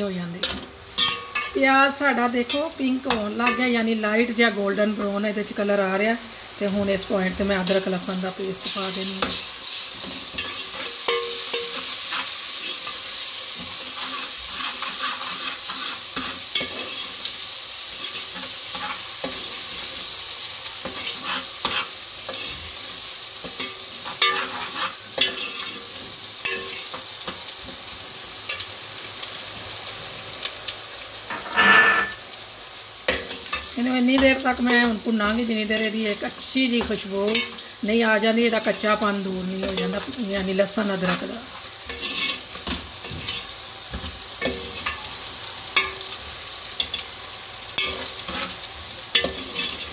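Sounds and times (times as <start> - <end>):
onions sizzling in hot oil: 0.0 - 49.9
ladle scraping metal pot: 31.3 - 32.3.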